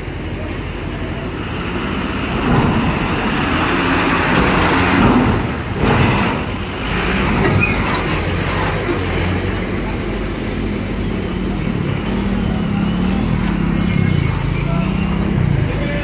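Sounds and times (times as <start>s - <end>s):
diesel truck engine under load: 0.0s - 16.0s.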